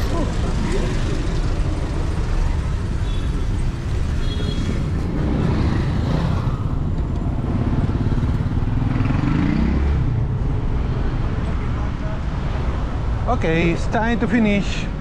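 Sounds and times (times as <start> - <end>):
car and motorcycle engines rumbling: 0.0 - 15.0.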